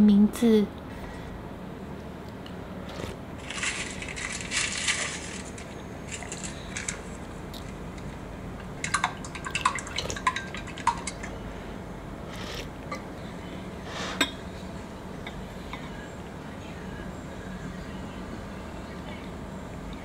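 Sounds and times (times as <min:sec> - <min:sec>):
person slurping soup: 0:12.3 - 0:12.7.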